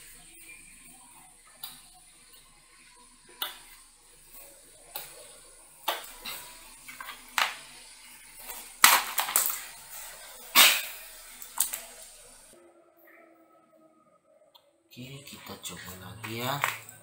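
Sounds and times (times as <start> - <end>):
cables and pc parts handled: 8.4 - 9.8.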